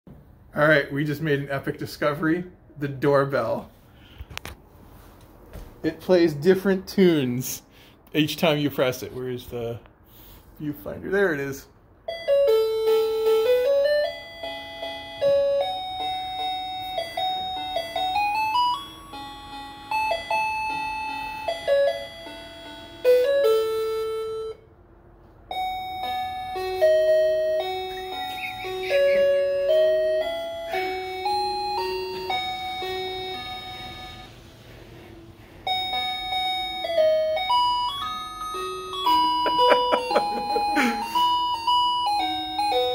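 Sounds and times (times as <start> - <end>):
electronic doorbell chime tune: 12.0 - 24.7, 25.5 - 34.5, 35.6 - 42.9.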